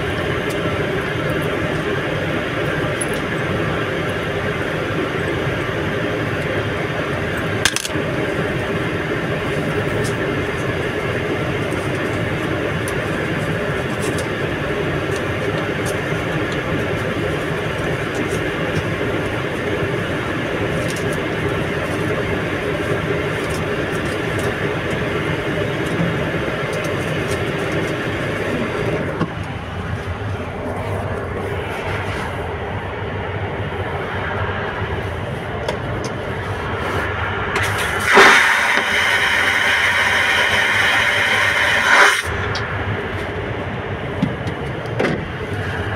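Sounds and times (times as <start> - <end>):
airplane cabin engine noise: 0.0 - 45.9
vacuum toilet flushing: 37.6 - 42.4.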